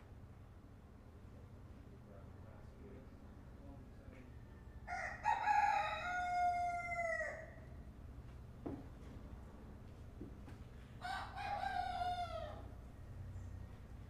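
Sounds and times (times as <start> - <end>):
rooster crowing: 4.8 - 7.7, 11.0 - 12.8.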